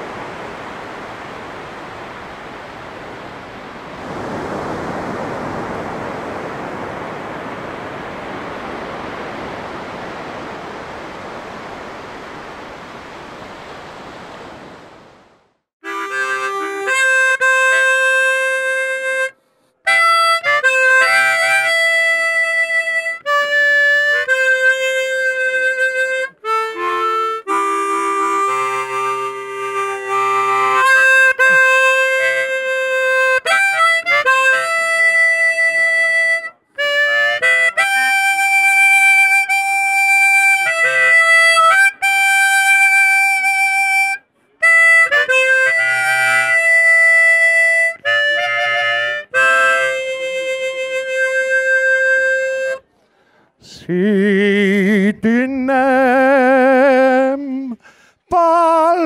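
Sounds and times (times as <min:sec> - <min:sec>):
harmonica playing slow tune: 0:15.8 - 0:53.4.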